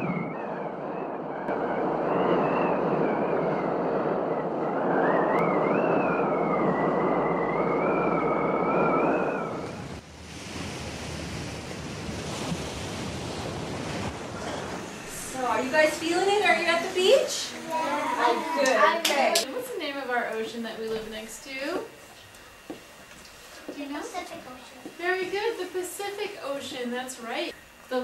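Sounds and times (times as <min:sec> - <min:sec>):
ocean surf rushing: 0:08.1 - 0:19.5.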